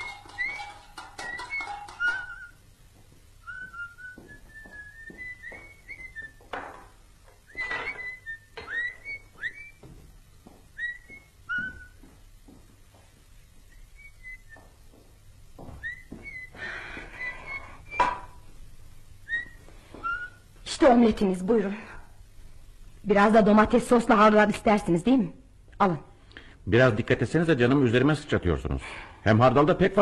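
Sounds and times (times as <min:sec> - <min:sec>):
kitchen utensils knocking and clinking: 0:00.0 - 0:02.6.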